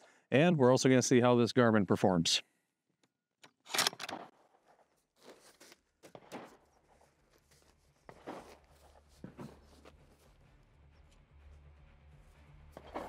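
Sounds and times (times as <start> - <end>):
faint rustling handling noises: 4.5 - 10.6.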